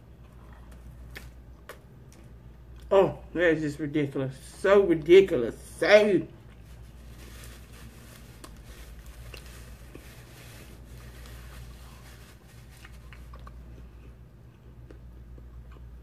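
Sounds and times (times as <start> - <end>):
steady low hum: 0.0 - 16.0
faint chewing: 0.1 - 2.9, 7.9 - 16.0
paper napkin rubbing: 6.6 - 13.1.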